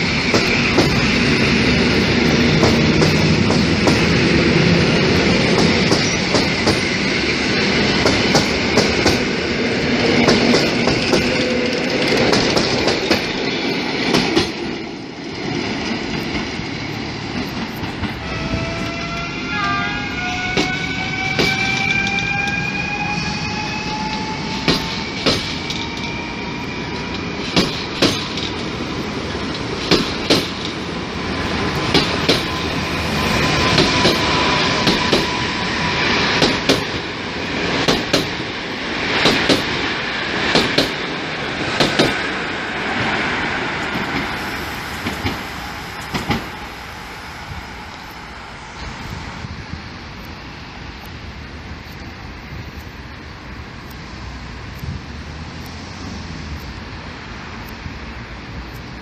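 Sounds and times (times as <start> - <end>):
train wheels clacking over rail joints: 0.0 - 14.8, 20.4 - 22.7, 23.9 - 26.2, 26.9 - 42.4, 43.8 - 47.0
electric train motors whining: 16.3 - 40.0, 43.7 - 58.9.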